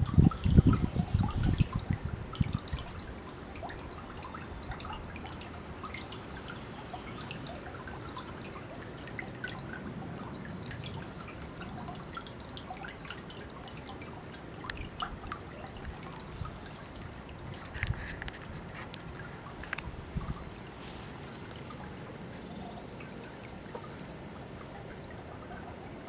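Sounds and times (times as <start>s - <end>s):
stream babbling over stones: 0.0s - 26.0s
water drips and plinks: 0.0s - 26.0s.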